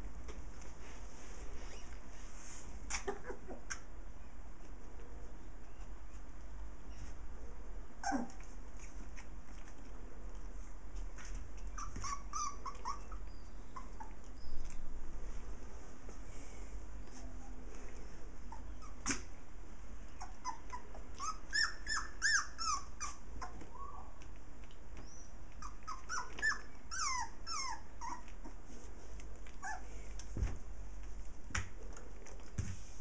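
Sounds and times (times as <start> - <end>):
puppies whimpering and yelping: 2.9 - 3.9, 8.0 - 9.0, 11.6 - 14.8, 18.4 - 19.3, 20.1 - 24.4, 25.0 - 28.6, 29.5 - 30.0.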